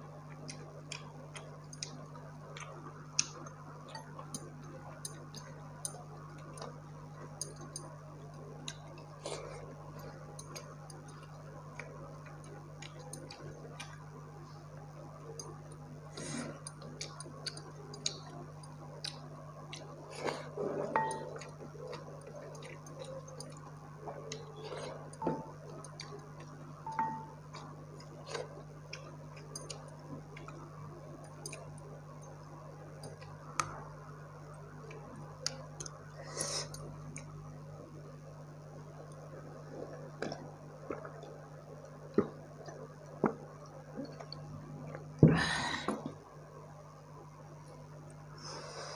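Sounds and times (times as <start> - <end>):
steady low hum: 0.0 - 48.9
mouth clicks and chewing: 0.2 - 6.8, 7.4 - 14.0, 15.3 - 32.4.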